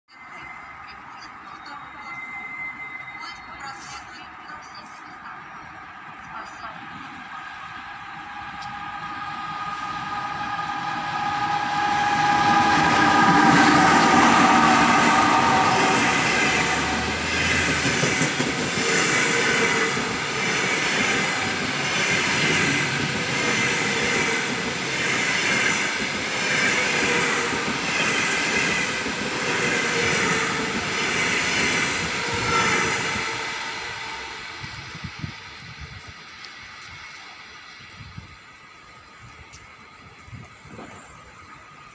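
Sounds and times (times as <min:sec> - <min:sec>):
locomotive horn: 0:08.6 - 0:17.8, 0:32.0 - 0:34.7.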